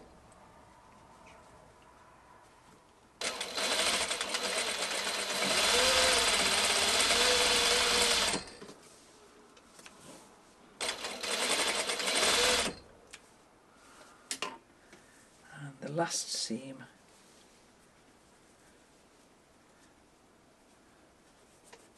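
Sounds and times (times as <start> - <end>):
sewing machine stitching: 3.2 - 8.6, 10.8 - 12.8.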